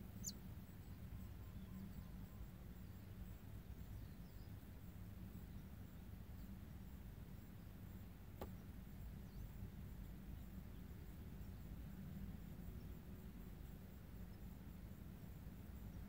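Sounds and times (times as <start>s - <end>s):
sharp tap: 8.4s - 8.6s.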